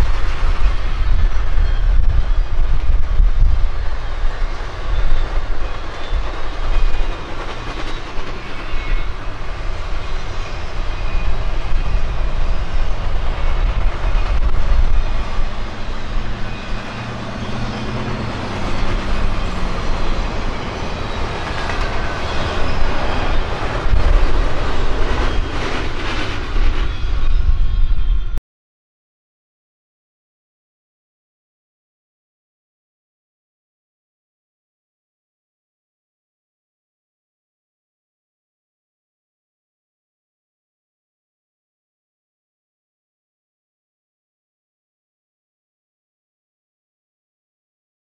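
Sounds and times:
train wheels rumbling on rails: 0.0s - 28.4s.

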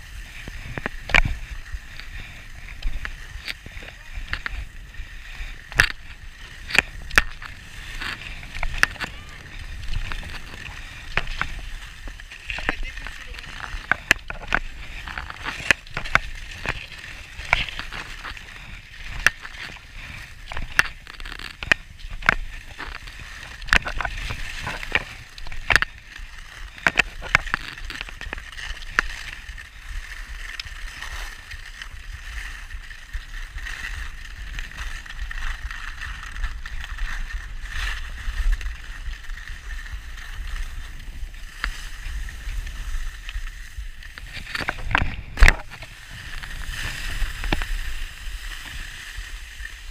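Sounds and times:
wind on microphone: 0.0s - 26.1s, 30.7s - 49.9s
skis scraping over snow: 0.0s - 49.9s.

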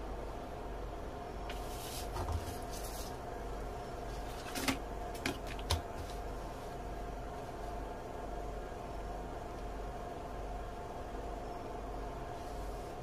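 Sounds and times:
steady background hum: 0.0s - 13.0s
paper rustling: 1.5s - 3.2s.

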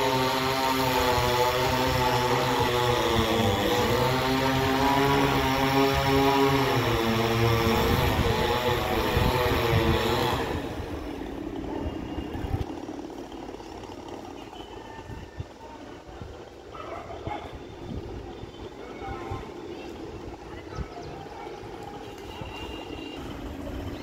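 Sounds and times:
chainsaw cutting wood: 0.0s - 11.7s.

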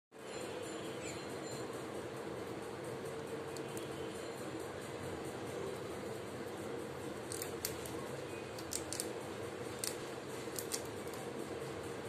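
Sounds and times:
rat gnawing crunching: 7.2s - 8.0s, 8.6s - 11.2s.

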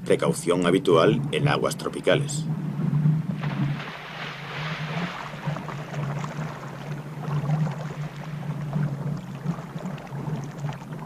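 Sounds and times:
steady low hum: 0.0s - 11.0s
water splashing and churning: 3.2s - 11.0s.

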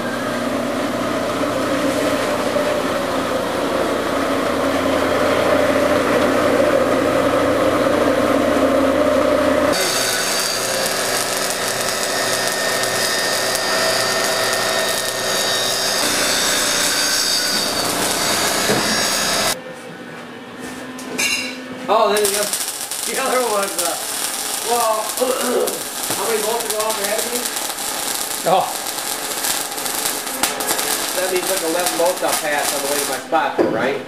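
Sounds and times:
power tool running: 0.0s - 19.6s, 22.2s - 33.3s
welding crackle: 9.7s - 19.6s, 22.2s - 33.3s.

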